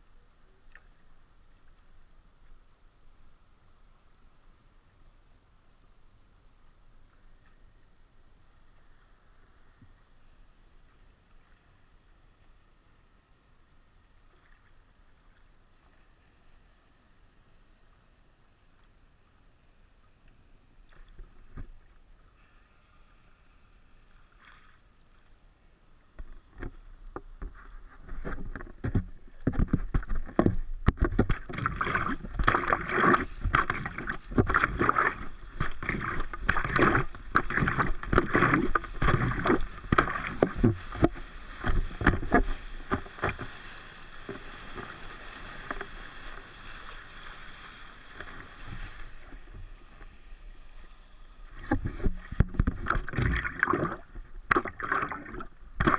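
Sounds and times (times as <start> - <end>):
water splashing against paddleboard: 26.2 - 50.3, 51.5 - 55.9.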